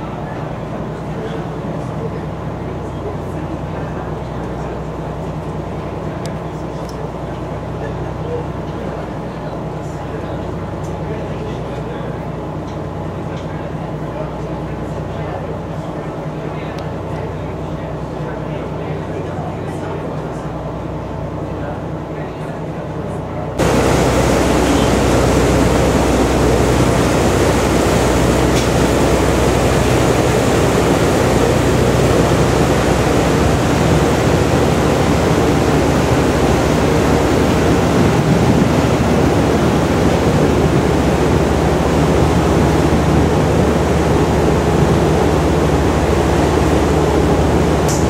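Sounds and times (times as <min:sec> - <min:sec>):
boat engine drone: 0:00.0 - 0:48.0
rush of wake water: 0:23.6 - 0:48.0.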